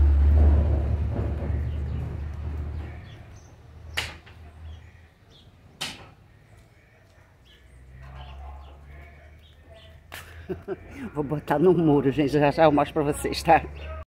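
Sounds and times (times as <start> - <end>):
sharp knocks: 5.8 - 6.2.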